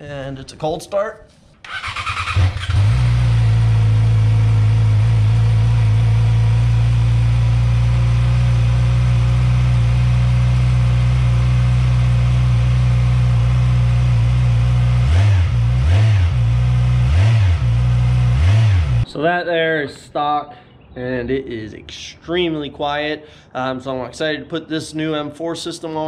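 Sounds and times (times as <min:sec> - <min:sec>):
motorcycle throttle blips: 0:01.6 - 0:19.1
motorcycle engine idling: 0:01.7 - 0:19.0.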